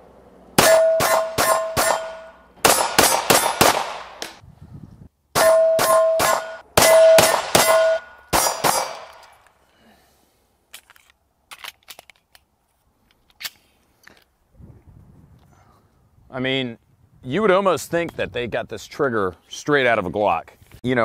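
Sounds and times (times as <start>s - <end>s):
metallic ring of steel targets: 0.6s - 3.7s, 5.4s - 9.3s
pistol shots: 0.6s - 4.4s, 5.4s - 9.3s.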